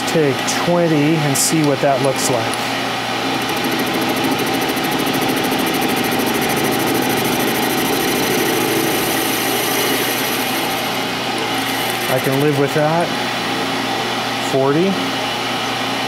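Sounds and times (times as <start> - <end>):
lathe humming: 2.7 - 13.9
fast even ticking: 3.4 - 10.8.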